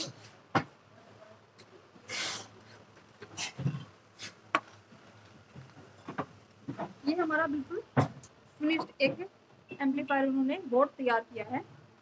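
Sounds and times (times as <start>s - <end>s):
short hiss: 2.1s - 2.5s.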